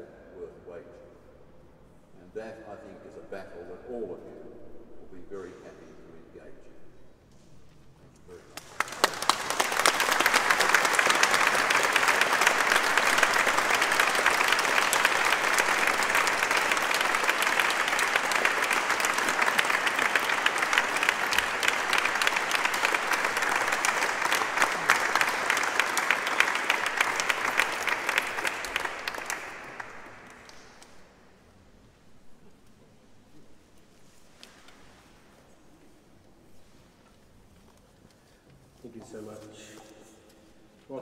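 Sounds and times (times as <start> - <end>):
audience applauding: 8.4 - 31.1.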